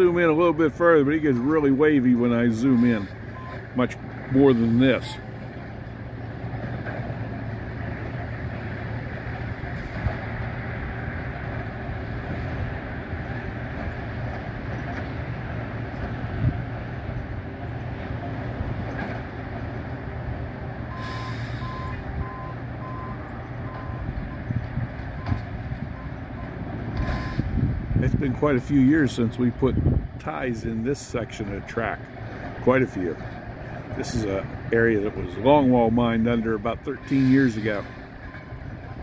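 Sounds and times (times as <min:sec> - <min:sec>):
distant machine engines running: 0:00.0 - 0:39.0.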